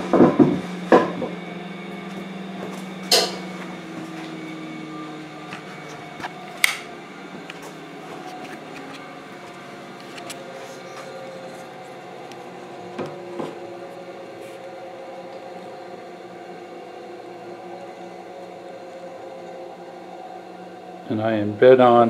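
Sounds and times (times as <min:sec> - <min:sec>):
boards knocking on table saw: 0:00.0 - 0:01.4, 0:02.6 - 0:03.5
steady low hum: 0:00.0 - 0:22.0.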